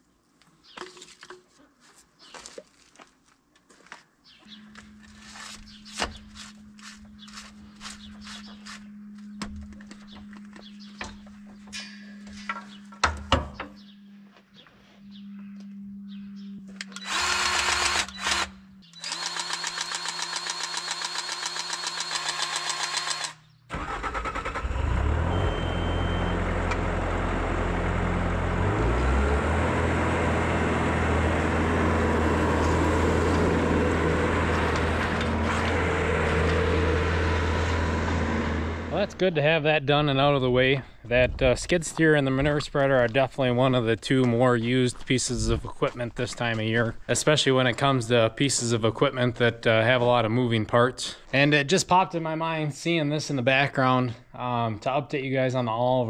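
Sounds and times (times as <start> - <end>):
diesel engine starting and running: 16.7 - 39.2
grease gun motor pulsing: 16.8 - 23.4.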